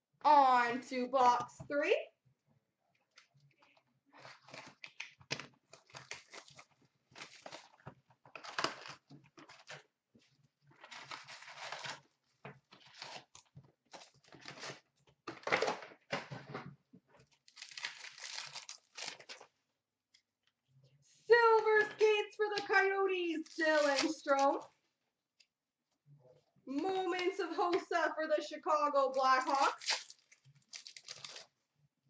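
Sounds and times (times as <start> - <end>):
wrapper ripping and crinkling: 4.2 - 9.8, 10.8 - 12.1, 12.7 - 14.8, 17.4 - 19.5, 22.7 - 24.7, 29.0 - 31.6.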